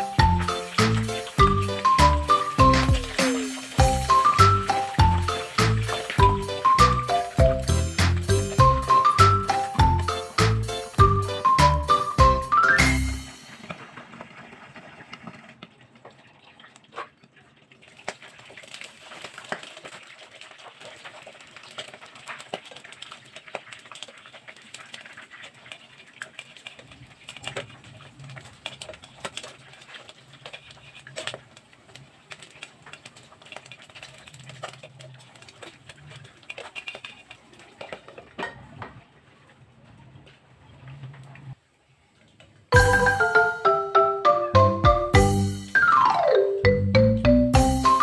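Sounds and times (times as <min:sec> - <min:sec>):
meat sizzling in a pan: 0:00.0 - 0:12.4
fat popping and crackling: 0:00.0 - 0:39.0.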